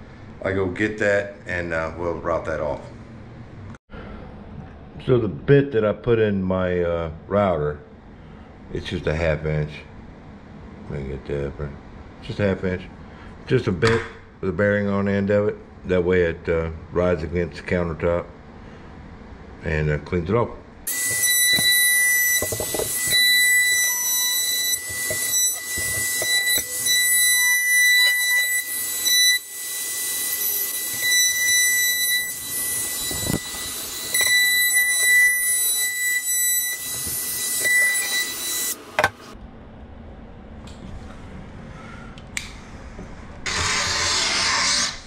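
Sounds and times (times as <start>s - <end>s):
trim router whining: 20.9s - 39.3s.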